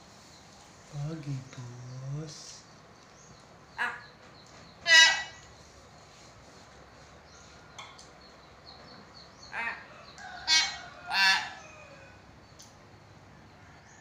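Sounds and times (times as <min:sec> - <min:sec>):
myna bird calls: 0:01.2 - 0:06.3, 0:07.2 - 0:12.8.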